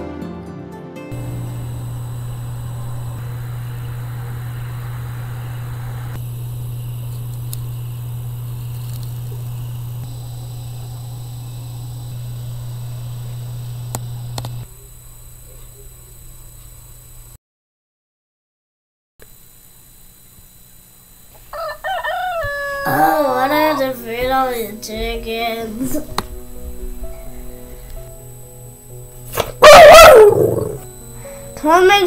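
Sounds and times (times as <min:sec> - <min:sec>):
low hum: 0:01.1 - 0:16.1.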